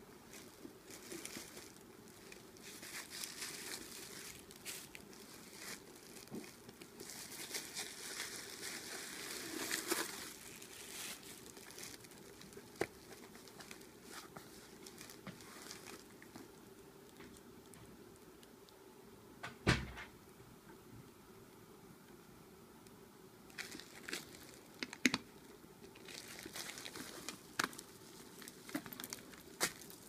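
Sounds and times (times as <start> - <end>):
tissue paper rustling and crinkling: 0.3 - 16.4, 23.6 - 24.7, 26.0 - 30.0.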